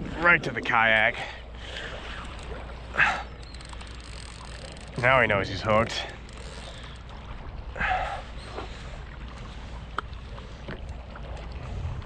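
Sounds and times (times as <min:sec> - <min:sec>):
water around a kayak: 0:00.0 - 0:12.0
wind: 0:00.0 - 0:12.0
sharp clicks: 0:03.4 - 0:05.1.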